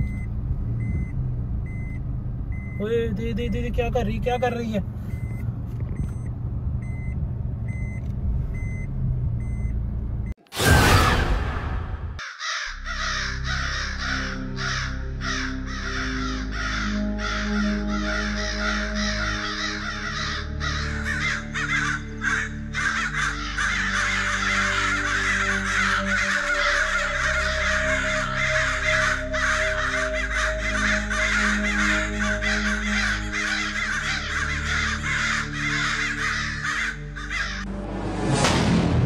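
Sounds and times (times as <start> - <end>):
flock of crows cawing: 12.2 - 37.7
low music drone: 12.8 - 39.0.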